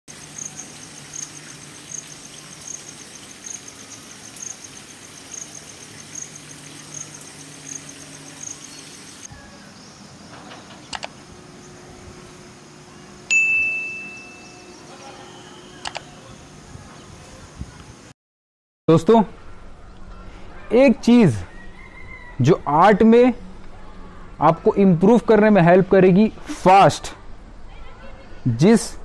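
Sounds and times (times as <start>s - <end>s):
high insect chirp: 0.1s - 16.7s
quick clicks: 10.9s - 11.2s, 15.8s - 16.1s
notification bell ding: 13.3s - 14.7s.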